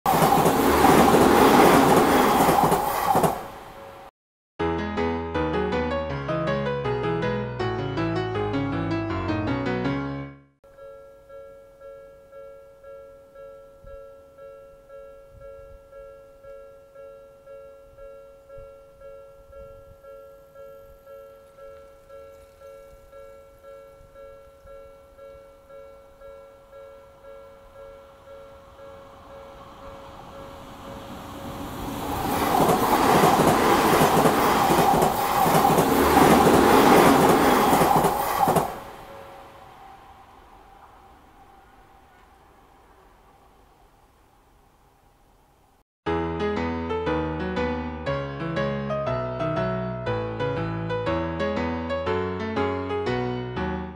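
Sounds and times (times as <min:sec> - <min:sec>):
train wheels rushing on rail: 0:00.1 - 0:04.1, 0:28.7 - 0:39.9
piano music: 0:04.6 - 0:40.1, 0:46.1 - 0:53.9
level crossing warning bell: 0:10.6 - 0:31.5
wheels clicking over rail joints: 0:28.7 - 0:39.1.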